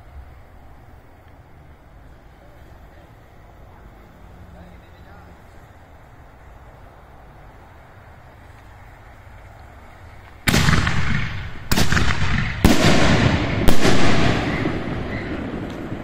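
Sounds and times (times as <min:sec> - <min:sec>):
firework bangs echoing: 0:10.4 - 0:16.0.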